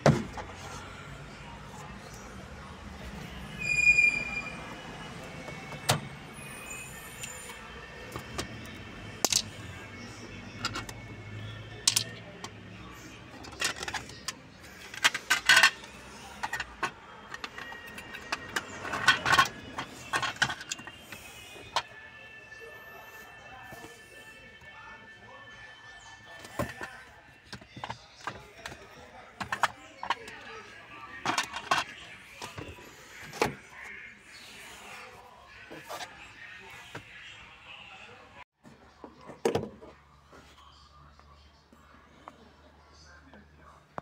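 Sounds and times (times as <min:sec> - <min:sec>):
faint music: 0:00.0 - 0:44.0.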